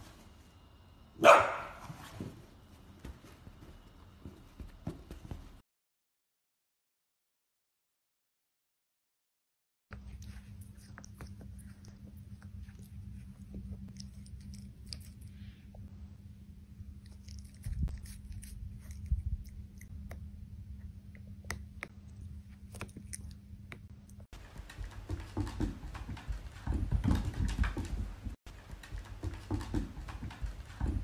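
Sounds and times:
puppy chewing on toys: 10.0 - 15.4, 17.0 - 20.3, 20.9 - 31.0.

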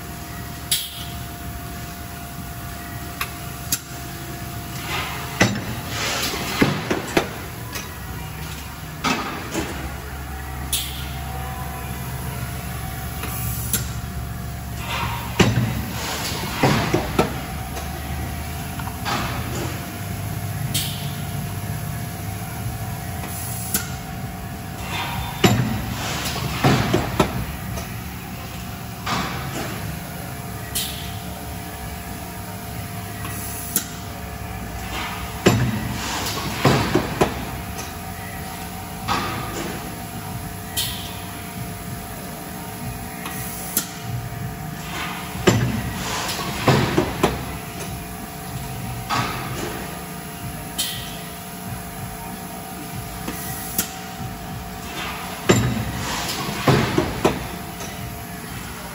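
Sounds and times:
steady machine hum: 0.0 - 58.9
heavy machine clunks: 54.8 - 58.0.

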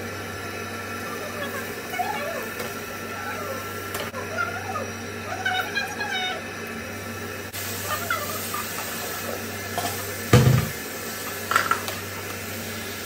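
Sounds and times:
chicken sizzling in a frying pan: 7.5 - 13.0.

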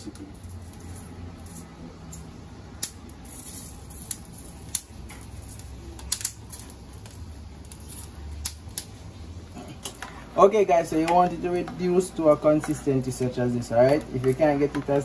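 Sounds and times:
metal tongs clacking on grill pan: 11.0 - 15.0.

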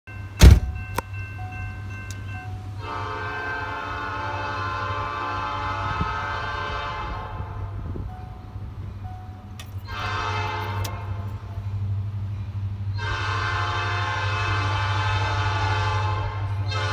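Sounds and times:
locomotive air horn chord: 2.6 - 8.0, 9.8 - 11.4, 12.9 - 16.9.

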